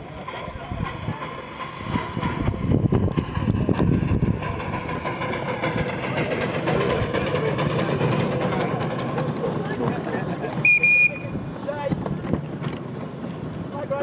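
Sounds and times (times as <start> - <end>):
steam hissing: 0.0 - 9.6
steam locomotive chuffing: 0.0 - 14.0.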